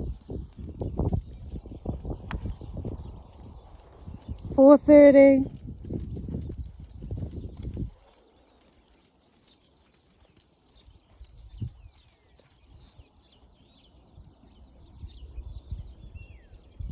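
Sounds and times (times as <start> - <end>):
horse hoofbeats on sand: 0.0 - 13.2
small birds chirping: 0.0 - 16.9.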